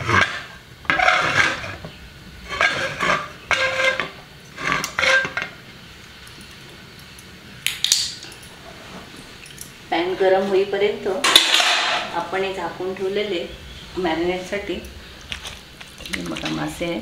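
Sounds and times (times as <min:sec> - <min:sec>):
frying pan scraping on stove: 0:00.0 - 0:05.7.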